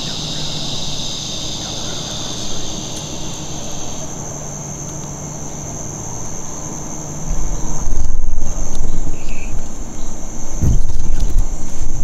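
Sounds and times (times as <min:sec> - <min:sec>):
insect chorus: 0:00.0 - 0:12.0
heavy low rumble: 0:07.2 - 0:12.0.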